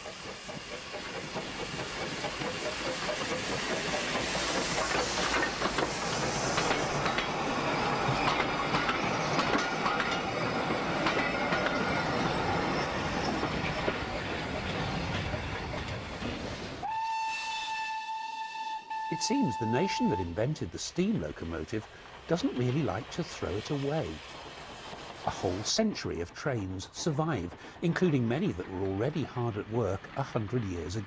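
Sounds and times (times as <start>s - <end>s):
train wheels clicking over rail joints: 0.0s - 16.9s, 20.0s - 31.0s
steam hiss: 0.0s - 17.8s, 19.1s - 31.0s
steam whistle blast: 16.8s - 20.4s.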